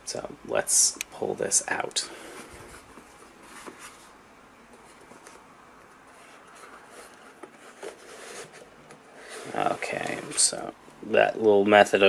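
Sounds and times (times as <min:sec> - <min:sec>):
rubbing and handling noise: 0:01.5 - 0:11.0.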